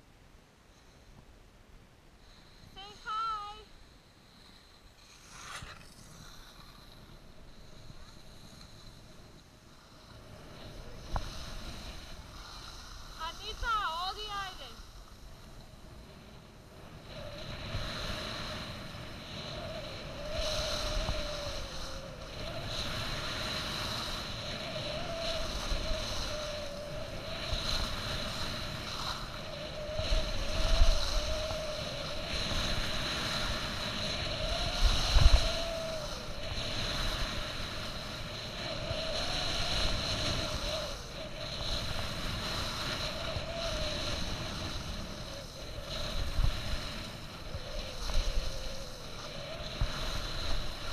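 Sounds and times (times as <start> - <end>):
heavy wind buffets: 2.5 - 50.9
skis scraping over snow: 4.3 - 15.2, 20.4 - 24.5, 25.4 - 26.4, 41.4 - 50.9
wind rushing over microphone: 4.3 - 50.9
wavering whine: 16.6 - 50.9.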